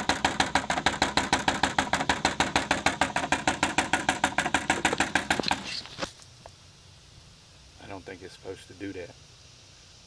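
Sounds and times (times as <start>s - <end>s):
motor-driven gear clicking rapidly: 0.0s - 6.1s.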